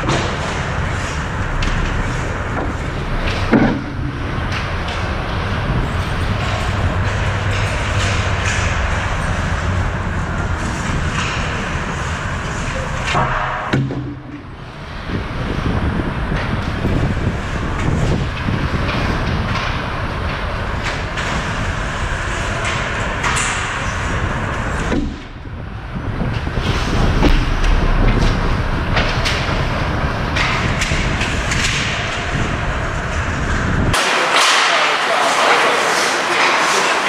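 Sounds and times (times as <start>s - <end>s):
rink rumble and hiss: 14.2s - 37.0s
hockey sticks and puck clacking: 16.4s - 25.2s, 30.3s - 32.5s, 33.5s - 37.0s.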